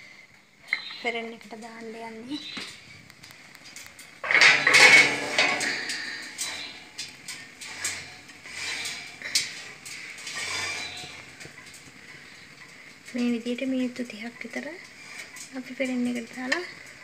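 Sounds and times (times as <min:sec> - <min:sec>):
glass dish clattering on oven rack: 0:04.2 - 0:06.7.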